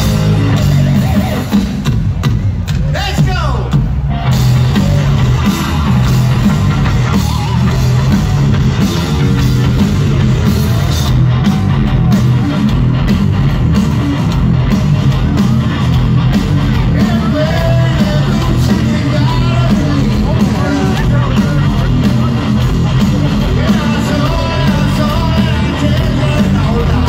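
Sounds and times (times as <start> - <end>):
rock band playing: 0.0 - 27.0
person singing: 16.8 - 22.0, 23.2 - 27.0.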